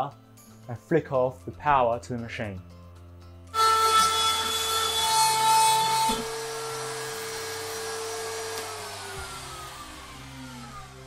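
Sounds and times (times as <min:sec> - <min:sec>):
router cutting wood: 0:03.5 - 0:11.0
router whine spinning down: 0:03.6 - 0:11.0.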